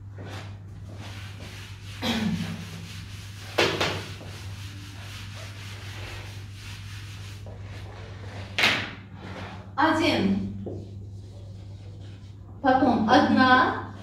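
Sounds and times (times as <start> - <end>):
eraser scrubbing whiteboard: 0.2 - 8.6, 10.4 - 12.4.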